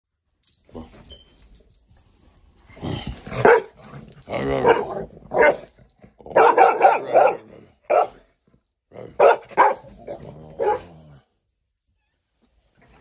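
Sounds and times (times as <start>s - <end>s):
dogs barking: 3.3s - 8.2s, 9.1s - 11.1s.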